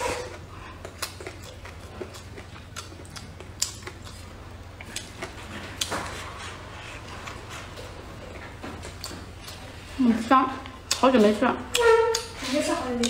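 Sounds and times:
chewing and mouth sounds: 0.0s - 10.0s.

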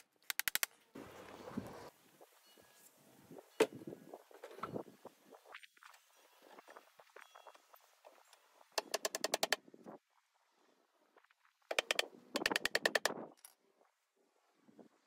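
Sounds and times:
hammer driving nails into wood: 11.7s - 13.2s.

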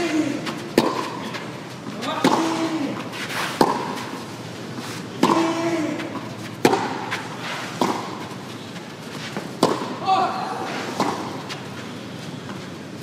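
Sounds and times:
tennis ball struck by rackets: 0.7s - 1.3s, 2.2s - 2.7s, 3.5s - 4.1s, 5.2s - 8.3s, 9.4s - 10.0s, 10.9s - 11.4s.

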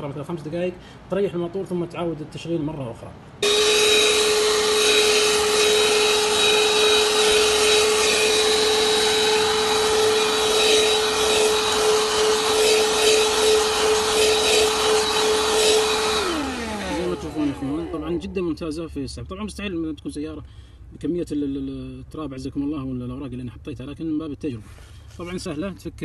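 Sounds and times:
car vacuum cleaner motor: 3.4s - 18.4s.

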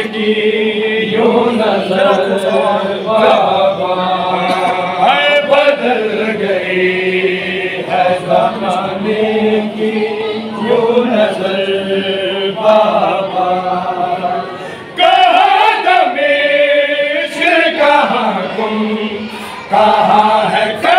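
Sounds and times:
group of men singing along: 0.0s - 20.9s
lead reciter chanting: 0.0s - 20.9s.

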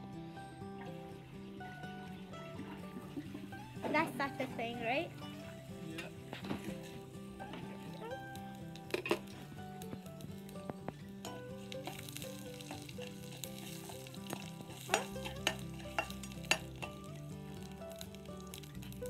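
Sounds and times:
spices sizzling in hot oil: 3.4s - 19.0s
metal spoon clinking against pan: 11.2s - 17.1s.

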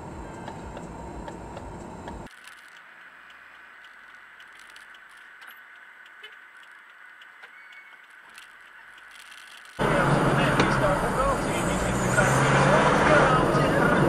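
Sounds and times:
small clicks and rattles: 0.8s - 9.8s
dense noise: 9.8s - 14.0s.

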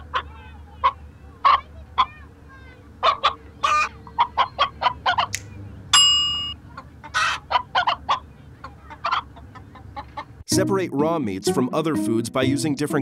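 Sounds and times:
chicken clucking: 0.0s - 2.3s, 3.0s - 5.5s, 6.5s - 10.4s
bright ding: 6.0s - 6.6s.

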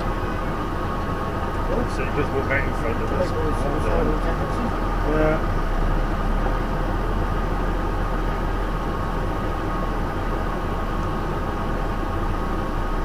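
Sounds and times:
lorry diesel engine running: 0.0s - 13.0s.

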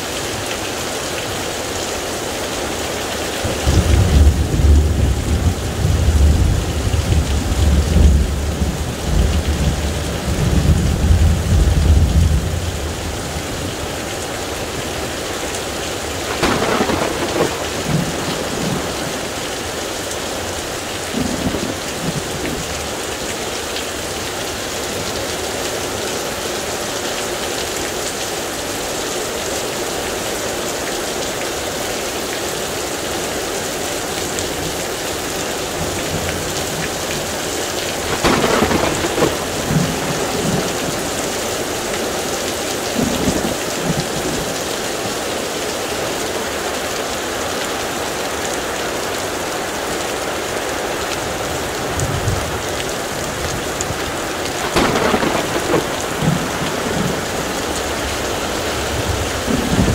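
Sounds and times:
heavy rain falling: 0.0s - 59.9s
thunder rumbling: 3.5s - 13.7s, 16.1s - 19.8s, 35.8s - 42.2s, 53.4s - 59.9s.

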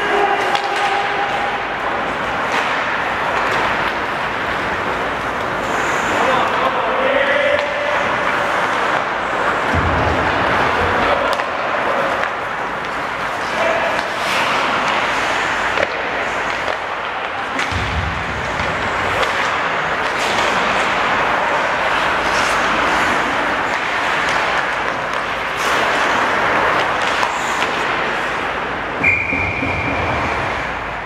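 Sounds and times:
hockey sticks and puck clacking: 0.0s - 31.0s
skate blades scraping ice: 10.4s - 17.8s, 18.4s - 28.9s.

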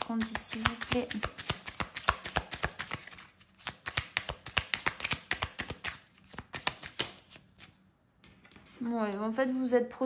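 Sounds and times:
cards shuffled by hand: 0.0s - 7.8s.

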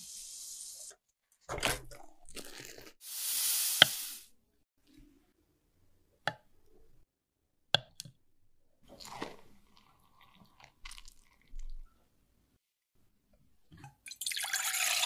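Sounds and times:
water pouring into bowl: 14.1s - 15.0s.

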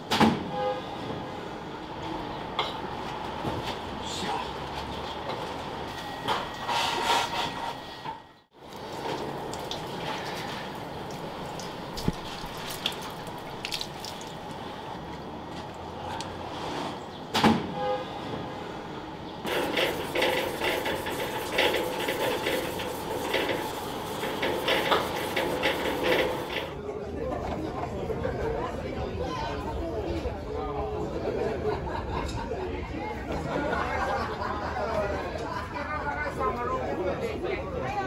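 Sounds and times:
water running: 8.6s - 15.0s.

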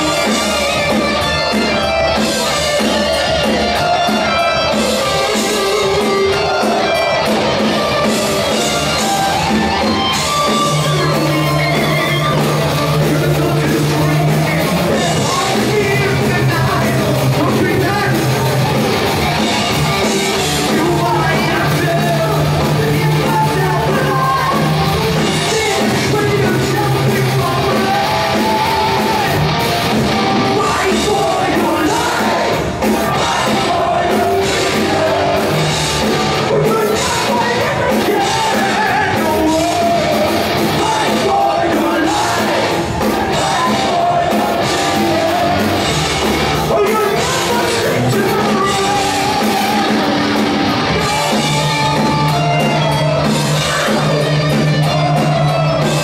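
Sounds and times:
heavy metal band playing live: 0.0s - 56.0s
shouted vocals: 0.0s - 56.0s.

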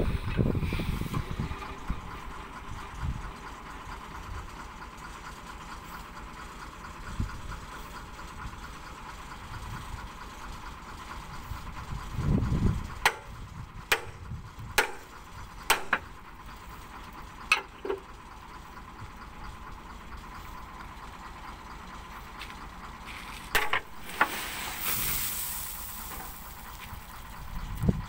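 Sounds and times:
truck engine idling: 0.0s - 28.0s
soil sliding with hiss: 23.0s - 27.4s.

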